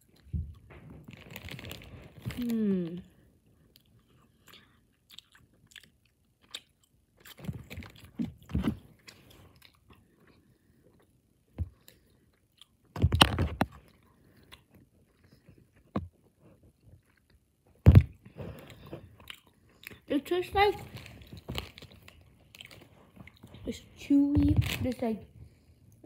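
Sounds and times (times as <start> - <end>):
person chewing gummy candy: 0.0 - 23.7.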